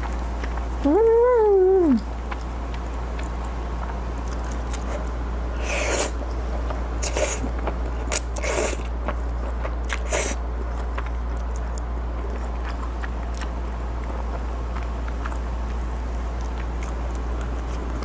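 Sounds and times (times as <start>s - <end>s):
low hum: 0.0s - 18.0s
chewing: 2.2s - 5.2s, 7.0s - 18.0s.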